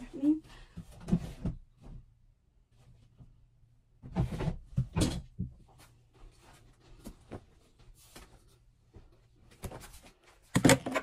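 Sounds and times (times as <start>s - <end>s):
clothes rustling: 5.5s - 10.5s.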